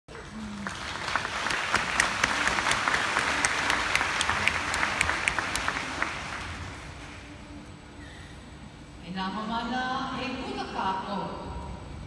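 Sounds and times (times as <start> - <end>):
audience applause: 0.1 - 7.2.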